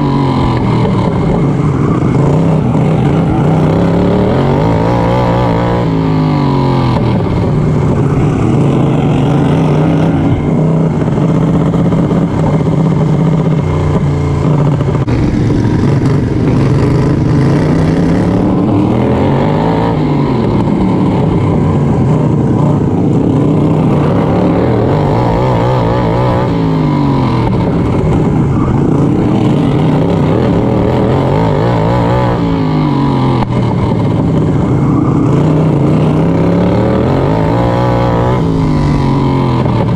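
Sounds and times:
lawn mower engine revving: 0:00.0 - 0:39.9.

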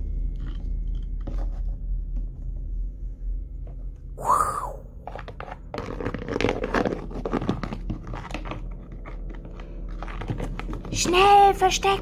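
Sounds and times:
plastic toys clicking and scraping: 0:05.1 - 0:11.6.

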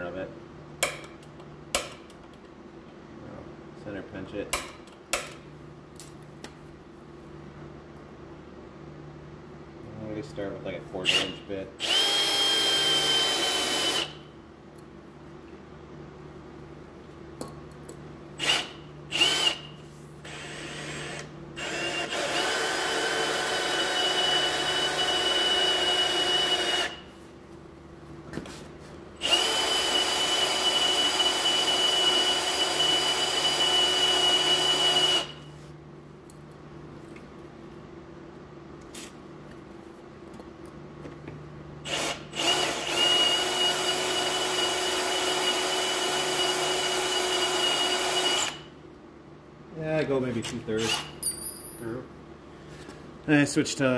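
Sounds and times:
electric drill whining: 0:11.1 - 0:14.2, 0:18.4 - 0:27.0, 0:29.2 - 0:35.4, 0:41.9 - 0:48.7.

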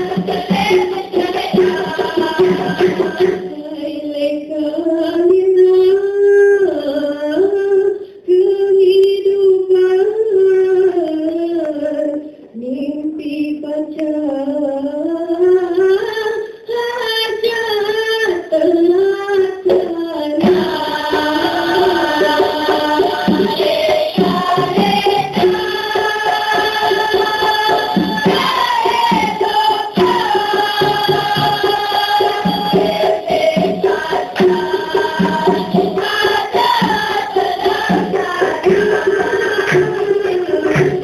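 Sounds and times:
group singing with tambourine: 0:00.0 - 0:05.4, 0:19.7 - 0:41.0
woman singing: 0:00.0 - 0:41.0.

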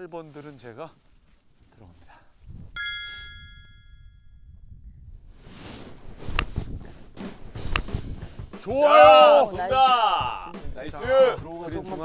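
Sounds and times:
sharp metallic ding: 0:02.8 - 0:04.4
golf club striking ball: 0:07.2 - 0:08.1.

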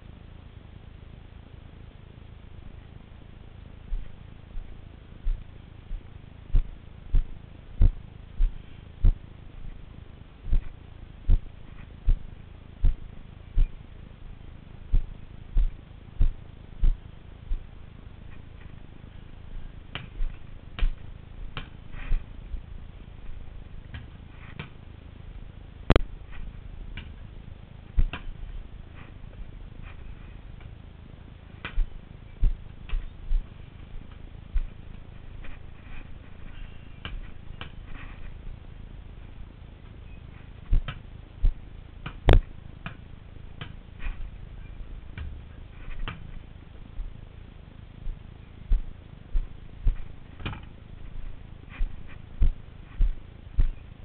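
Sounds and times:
low rumble: 0:00.0 - 0:54.0
ball bouncing on paving stones: 0:10.5 - 0:13.9, 0:14.9 - 0:17.7, 0:19.9 - 0:22.7, 0:23.8 - 0:24.8, 0:25.9 - 0:27.3, 0:28.0 - 0:28.5, 0:31.6 - 0:38.0, 0:40.6 - 0:44.2, 0:45.2 - 0:46.4, 0:48.7 - 0:50.8
basketball bouncing on paving: 0:14.9 - 0:17.7, 0:19.9 - 0:22.7, 0:28.0 - 0:28.4, 0:31.6 - 0:34.8, 0:40.7 - 0:43.8.

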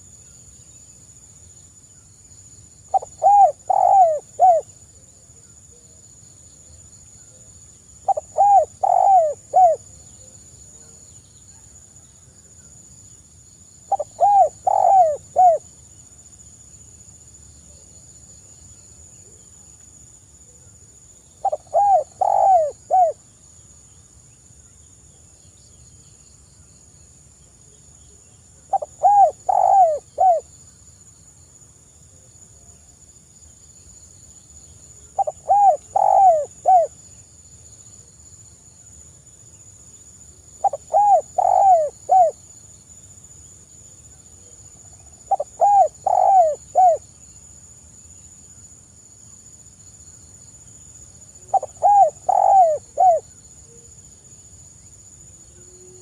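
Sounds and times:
dove cooing: 0:02.9 - 0:04.7, 0:08.0 - 0:09.9, 0:13.9 - 0:15.6, 0:21.4 - 0:23.2, 0:28.7 - 0:30.4, 0:35.2 - 0:36.9, 0:40.6 - 0:42.4, 0:45.3 - 0:47.0, 0:51.5 - 0:53.2.

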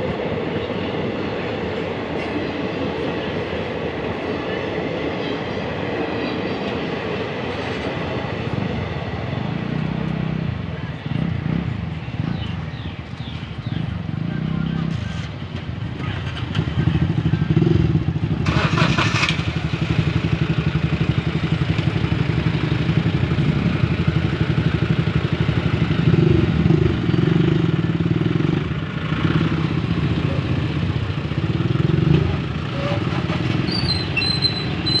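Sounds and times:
motorcycle engines running: 0:08.2 - 0:35.0
harsh engine burst: 0:18.4 - 0:19.7.

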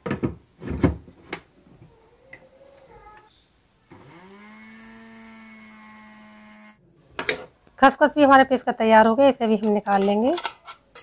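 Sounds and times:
mixer grinder motor hum: 0:03.9 - 0:06.8.

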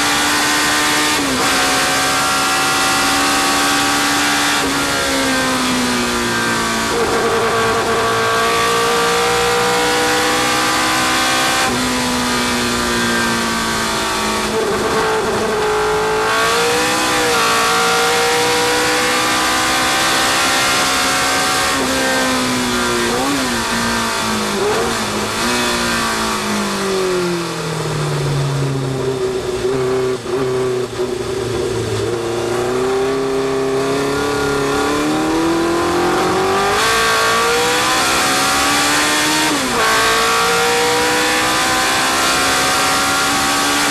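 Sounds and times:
racing car engine: 0:00.0 - 0:43.9.

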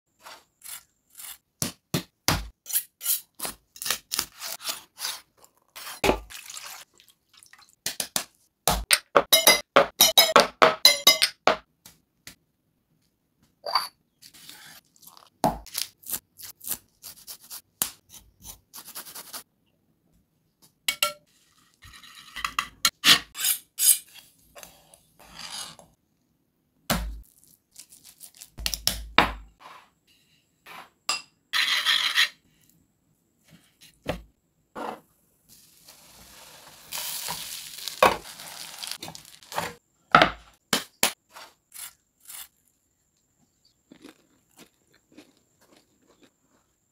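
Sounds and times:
hands mixing wet marinade: 0:05.2 - 0:08.4
utensils and dishes clinking: 0:09.2 - 0:11.4
fish frying in oil hiss: 0:35.5 - 0:39.8.

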